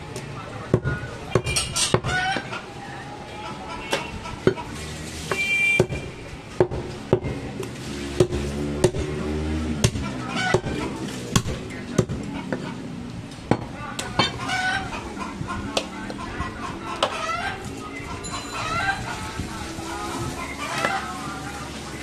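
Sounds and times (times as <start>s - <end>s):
cleaver chopping meat and bone: 0.7s - 2.5s, 5.3s - 12.6s
chickens clucking: 0.7s - 5.4s, 9.8s - 22.0s
background voices: 10.1s - 22.0s.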